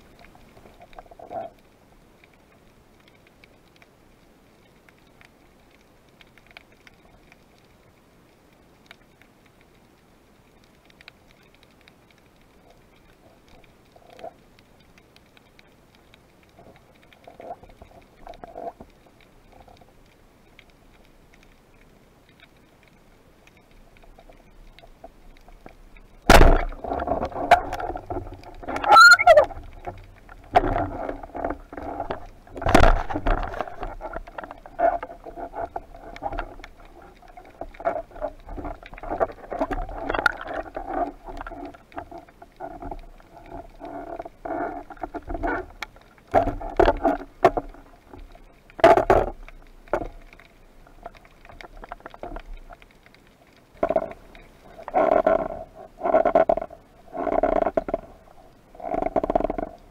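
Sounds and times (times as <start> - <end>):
knocking and rattling underwater: 16.4 - 20.7, 23.4 - 59.9.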